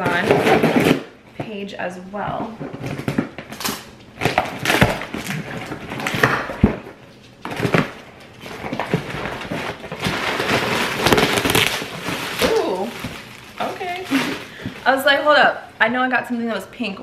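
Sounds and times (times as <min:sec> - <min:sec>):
cardboard ripping and scraping: 0:00.0 - 0:01.1, 0:04.2 - 0:14.6.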